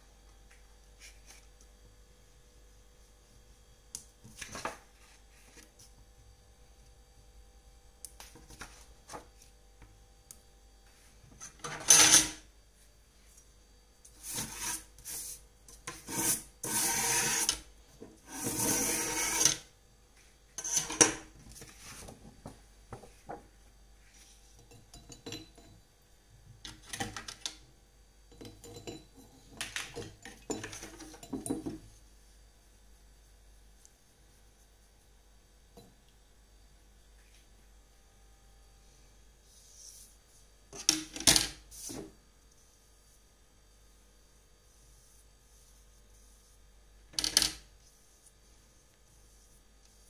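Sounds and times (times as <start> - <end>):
rubbing and scraping: 14.2 - 19.6.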